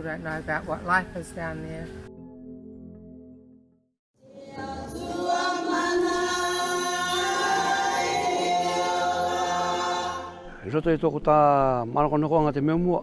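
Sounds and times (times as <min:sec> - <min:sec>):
choir singing held chords: 0:04.2 - 0:10.7.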